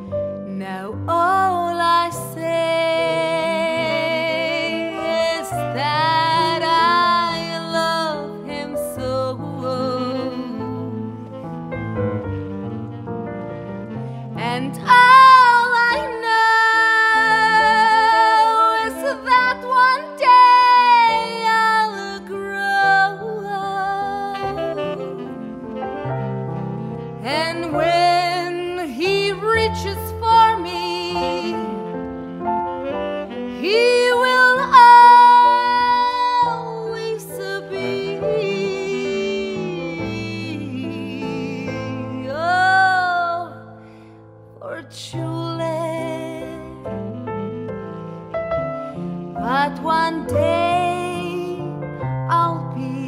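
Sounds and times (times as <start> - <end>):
woman singing with vibrato: 0.5 - 11.0, 14.4 - 25.4, 27.2 - 31.8, 33.5 - 43.7, 44.6 - 46.8, 49.4 - 51.7, 52.3 - 53.0.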